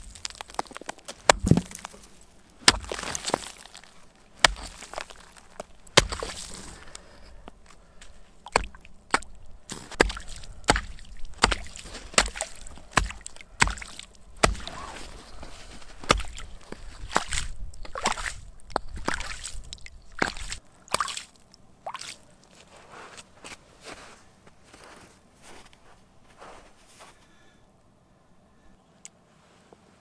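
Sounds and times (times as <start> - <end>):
axe chopping into wet ice: 0.0 - 2.0, 2.6 - 6.6, 8.5 - 14.9, 16.0 - 19.5.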